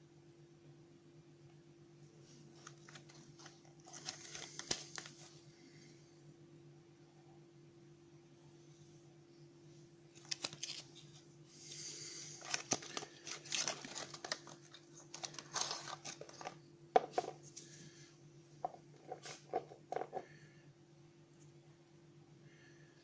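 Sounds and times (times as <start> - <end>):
packaging crinkling: 2.6 - 5.4, 10.1 - 17.2.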